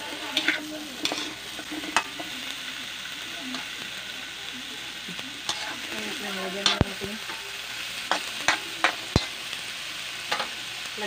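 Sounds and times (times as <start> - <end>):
metal spatula scraping a pan: 0.0 - 2.5, 5.4 - 9.6, 10.2 - 10.6
vegetables sizzling in a wok: 0.0 - 11.0.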